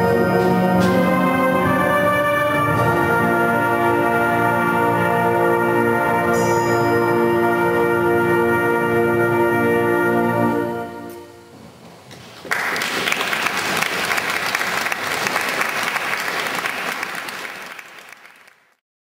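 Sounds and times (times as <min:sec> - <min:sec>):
wind band chord ringing: 0:06.1 - 0:11.3
audience applause: 0:12.4 - 0:18.8.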